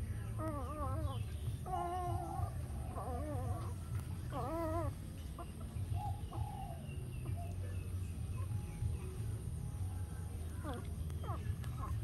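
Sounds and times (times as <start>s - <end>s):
puppies whimpering: 0.0s - 7.6s, 10.5s - 12.0s.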